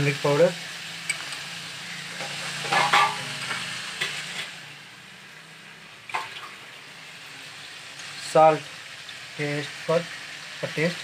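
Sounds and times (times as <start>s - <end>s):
chicken sizzling in oil: 0.0s - 11.0s
metal ladle scraping wok: 1.0s - 4.6s.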